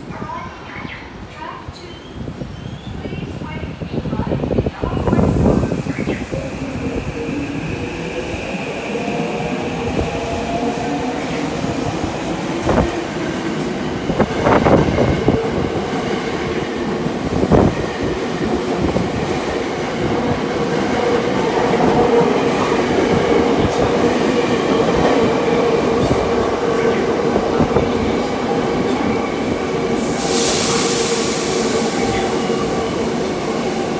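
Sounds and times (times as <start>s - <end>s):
train motors humming: 4.6s - 33.9s
loud hiss: 5.0s - 10.8s, 29.3s - 33.9s.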